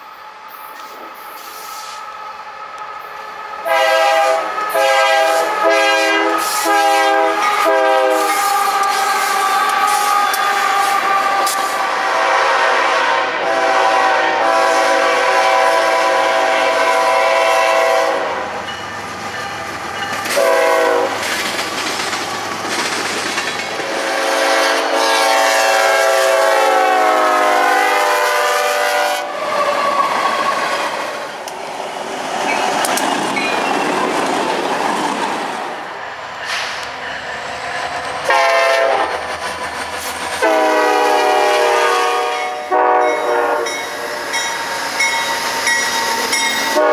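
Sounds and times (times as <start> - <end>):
train rumbling by: 0.0 - 46.9
locomotive horn blasts: 3.6 - 18.6, 20.3 - 21.2, 23.9 - 29.4, 38.3 - 39.2, 40.4 - 43.8.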